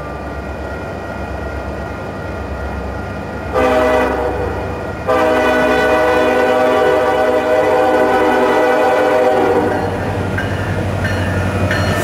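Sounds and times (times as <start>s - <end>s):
low rumble of train: 0.0s - 12.0s
locomotive air horn blasts: 3.5s - 10.0s.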